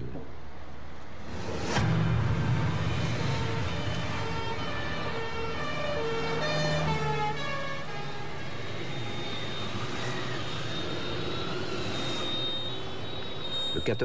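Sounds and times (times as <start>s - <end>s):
hum of passing vehicles: 0.0s - 14.0s
two-tone emergency siren: 3.1s - 14.0s.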